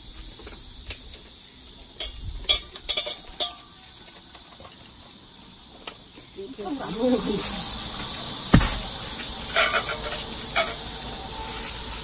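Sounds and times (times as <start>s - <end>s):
insects droning: 0.0s - 12.0s
metal cookware clinks: 2.0s - 3.7s.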